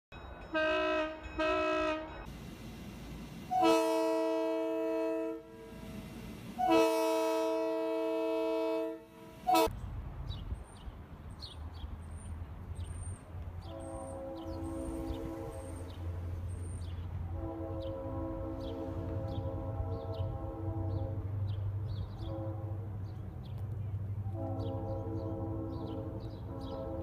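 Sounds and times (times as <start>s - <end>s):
locomotive air horn chord: 0.5s - 2.4s, 3.5s - 9.7s, 13.6s - 23.2s, 24.2s - 27.0s.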